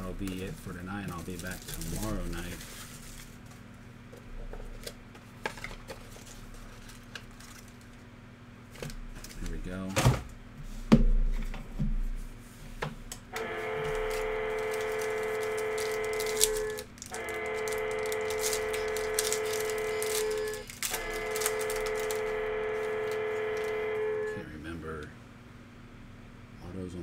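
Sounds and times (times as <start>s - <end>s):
card wrappers crackling: 0.0s - 3.7s, 4.8s - 8.0s, 13.4s - 24.2s
steady pitched tone: 13.4s - 24.6s.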